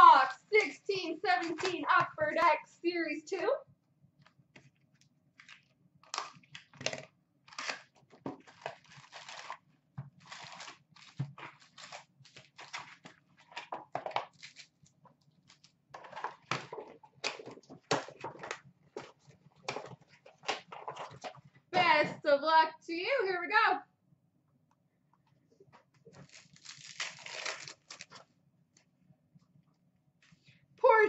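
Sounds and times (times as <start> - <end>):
wrapped packs crinkling and rustling: 5.4 - 14.8, 26.1 - 28.3
cardboard box tearing open: 26.2 - 28.1.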